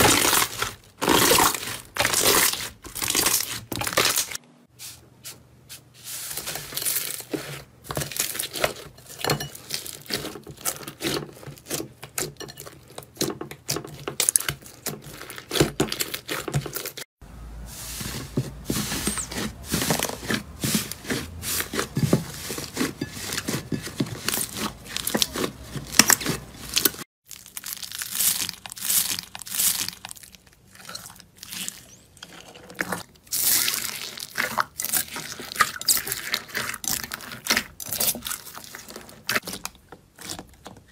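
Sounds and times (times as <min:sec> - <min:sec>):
slime crackling and popping: 0:26.0 - 0:32.0.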